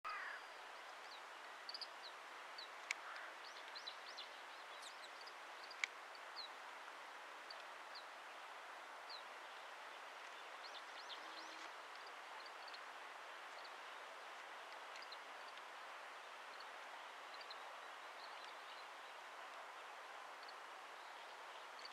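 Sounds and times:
background hiss: 0.1s - 21.9s.

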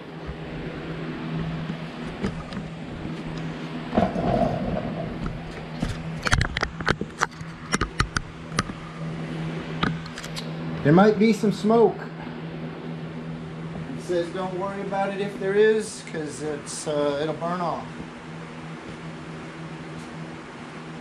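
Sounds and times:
steady low hum: 0.0s - 21.0s
sharp clicks and knocks: 1.6s - 8.8s.

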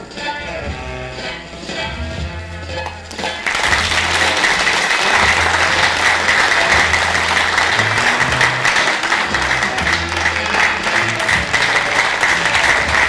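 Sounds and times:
music playing: 0.0s - 13.0s
audience applauding: 3.1s - 13.0s.

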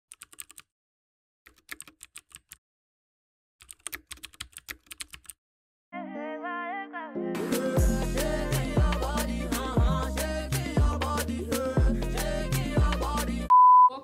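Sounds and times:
rapid keyboard key clicks: 0.1s - 0.7s, 1.5s - 2.6s, 3.6s - 5.4s.

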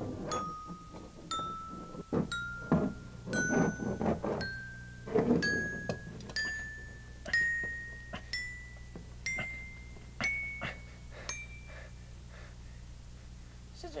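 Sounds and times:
glockenspiel notes: 0.2s - 12.1s.

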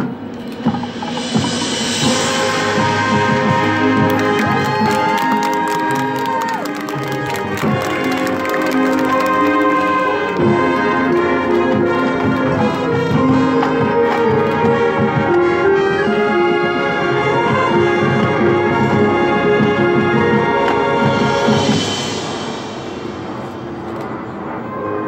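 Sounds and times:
marching drums and percussion: 0.0s - 24.6s
brass melody: 0.0s - 25.0s.

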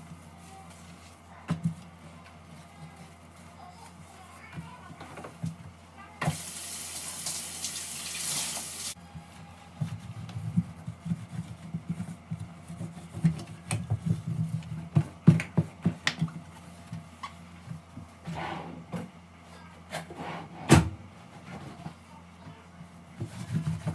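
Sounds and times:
cloth rubbing on glass hob: 9.6s - 13.3s.

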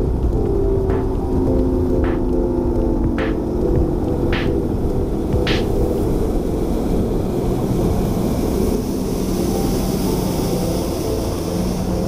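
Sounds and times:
outboard motor drone: 4.1s - 12.0s.

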